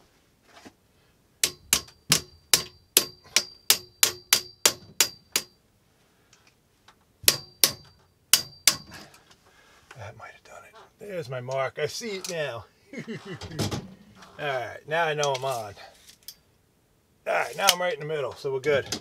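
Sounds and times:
metal tool tapping pliers: 1.4s - 5.6s, 7.3s - 9.0s.

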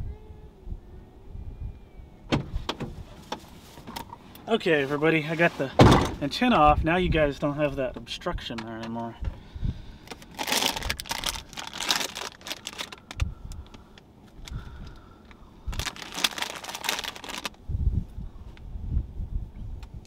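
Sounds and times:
crinkling rustling noise: 10.0s - 13.2s, 15.7s - 17.6s.

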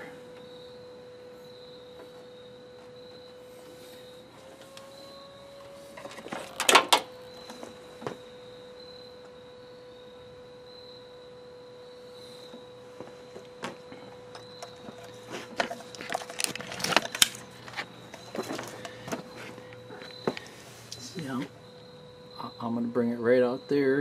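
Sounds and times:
faint high tone hum: 0.0s - 24.0s.

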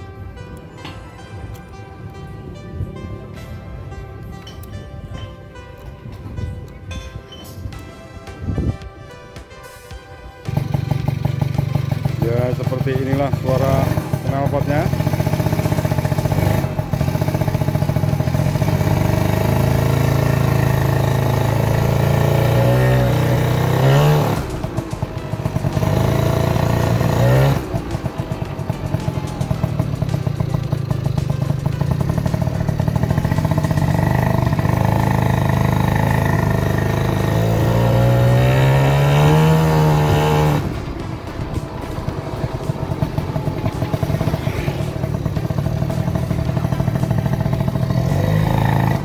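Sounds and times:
scooter engine running: 10.4s - 49.0s.

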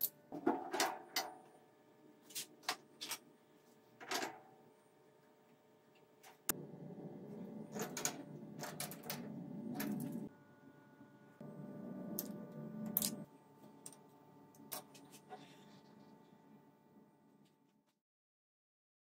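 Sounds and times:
low rumbling noise: 6.5s - 13.2s.

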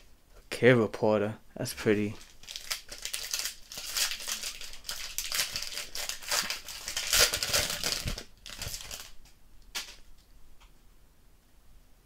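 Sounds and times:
foil wrapper crinkling: 2.2s - 9.2s.

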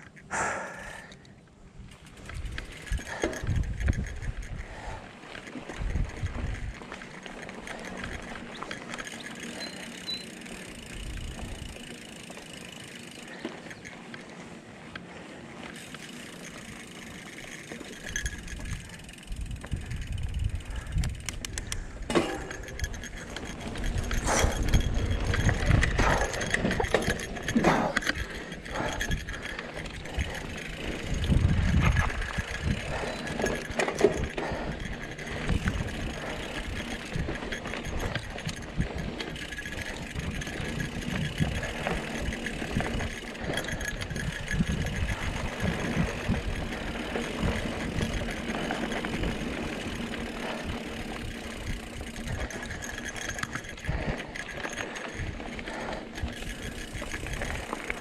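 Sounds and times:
wind buffeting microphone: 1.7s - 9.0s, 18.1s - 58.0s
bike rattling over bumps: 1.7s - 58.0s
sharp clicks and knocks: 21.0s - 48.6s.

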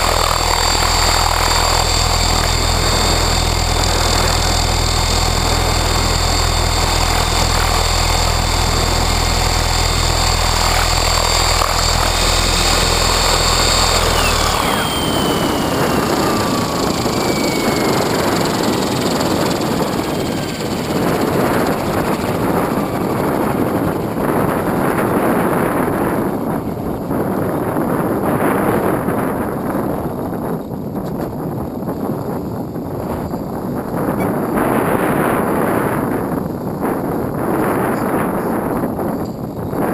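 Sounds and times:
rc helicopter motor and rotor: 0.0s - 29.0s
wind buffeting microphone: 0.0s - 39.9s.

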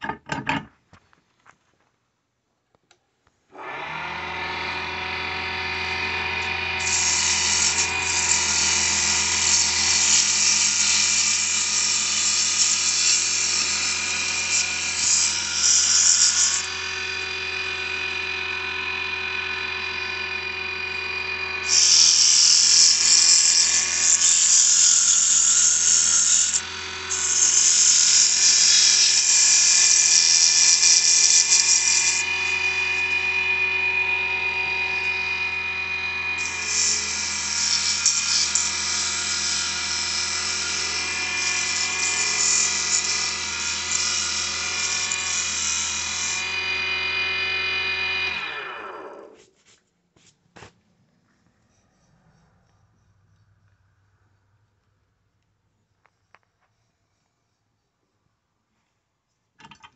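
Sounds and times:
wood lathe motor whine: 3.5s - 49.4s
loud hiss of wood being turned: 6.8s - 16.7s, 21.6s - 32.6s.

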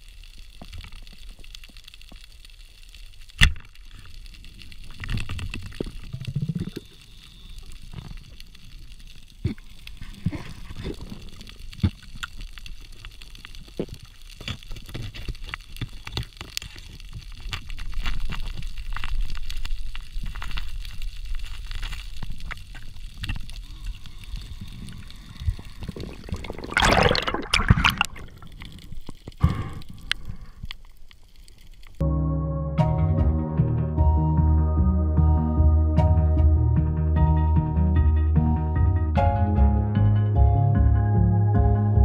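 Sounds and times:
small underwater clicks: 0.0s - 32.0s
rush of water noise: 25.1s - 28.6s.

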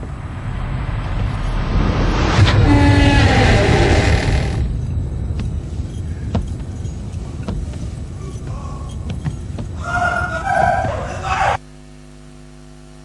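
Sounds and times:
heavy metal door grinding: 0.0s - 5.3s.

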